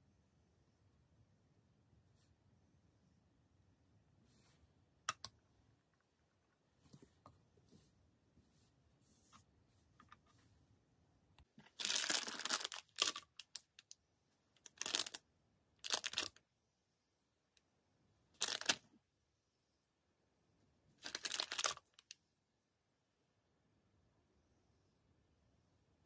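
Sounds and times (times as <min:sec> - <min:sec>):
plastic snack packet crinkling: 0:11.7 - 0:13.9, 0:14.6 - 0:15.2, 0:15.8 - 0:16.4, 0:18.4 - 0:18.8, 0:21.0 - 0:22.1.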